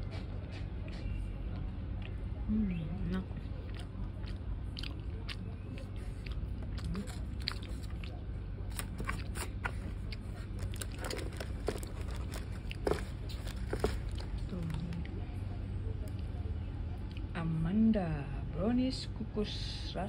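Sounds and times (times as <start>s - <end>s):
person chewing: 3.6s - 15.1s.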